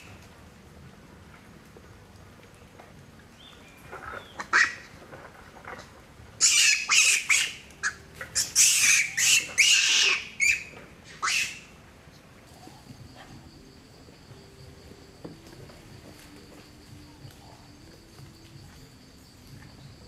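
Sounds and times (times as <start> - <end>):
monkeys screaming: 4.1 - 5.0, 6.4 - 11.7.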